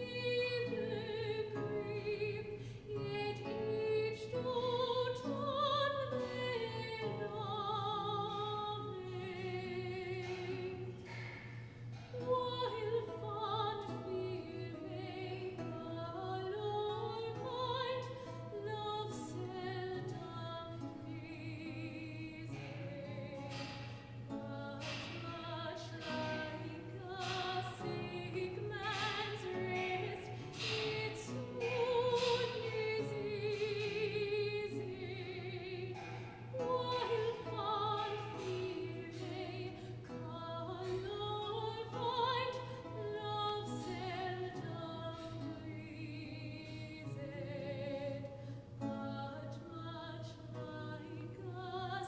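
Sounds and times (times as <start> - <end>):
soprano singing with vibrato: 0.0 - 11.2, 12.1 - 52.0
plucked lute: 0.0 - 52.0.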